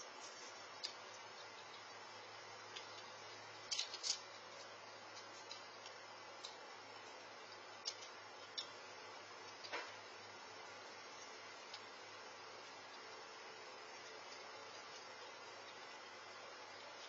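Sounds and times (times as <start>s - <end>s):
faint low hum: 0.0s - 17.0s
microphone hiss: 0.0s - 17.0s
faint clicks and ticks: 0.1s - 8.8s.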